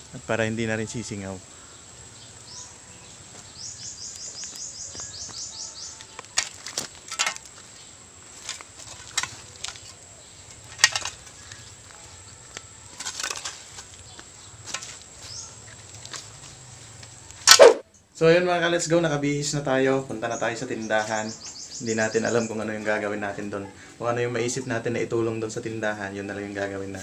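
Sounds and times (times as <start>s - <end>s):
rustling and scuffing: 3.2s - 17.8s
quick high chirps: 17.5s - 17.8s.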